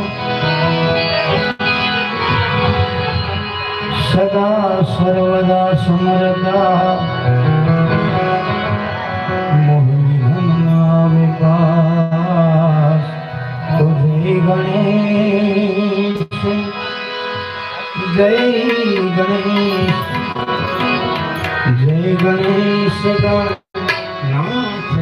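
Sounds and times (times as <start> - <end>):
harmonium chords: 0.0 - 25.0
man singing: 3.8 - 8.2, 9.2 - 20.6, 21.6 - 25.0
hand drum: 18.3 - 23.0.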